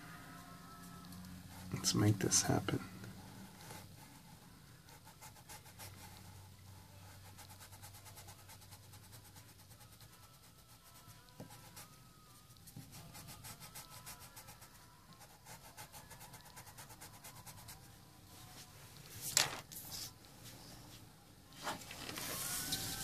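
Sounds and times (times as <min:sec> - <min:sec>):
paper sliding across table: 0:21.6 - 0:23.0
blending stump rubbing paper: 0:22.0 - 0:23.0.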